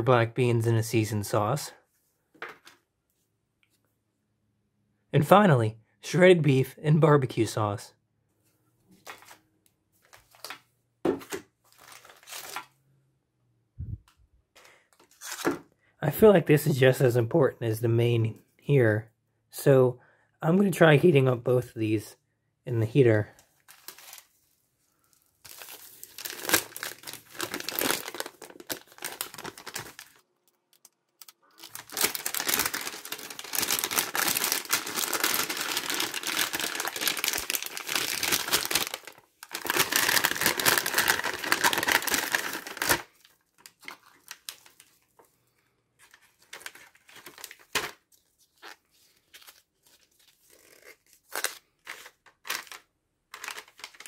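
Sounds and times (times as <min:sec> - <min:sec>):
plastic packaging crinkling and tearing: 0:11.7 - 0:12.7, 0:23.6 - 0:24.5, 0:25.1 - 0:45.1, 0:46.0 - 0:54.0.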